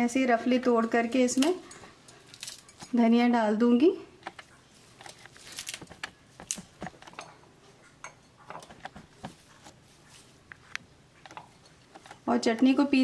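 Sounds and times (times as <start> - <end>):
herbs torn snapping and rustling: 5.0 - 7.0.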